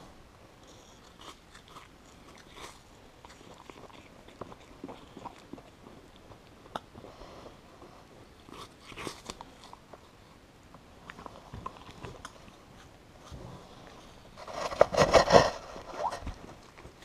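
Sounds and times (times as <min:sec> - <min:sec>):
animal crunching ice: 0:00.9 - 0:05.8, 0:08.5 - 0:10.1, 0:14.4 - 0:17.0.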